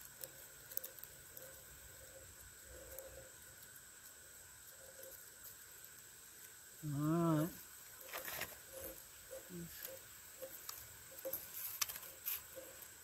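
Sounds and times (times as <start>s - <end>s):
person humming: 6.8s - 7.6s.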